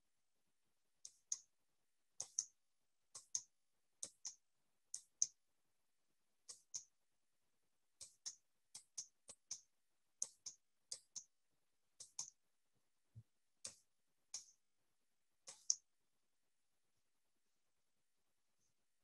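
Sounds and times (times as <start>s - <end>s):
computer mouse clicks: 2.2s - 2.5s, 10.2s - 11.3s, 12.0s - 12.4s, 15.5s - 15.8s.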